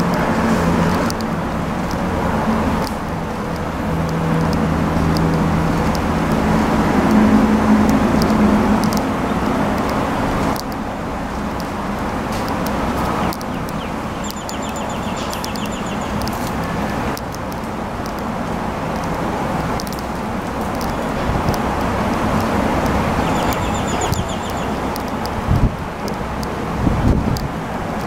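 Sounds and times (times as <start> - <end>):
ambient rumble with low hum: 0.0 - 28.0
high chirps: 13.0 - 17.0, 23.2 - 25.3.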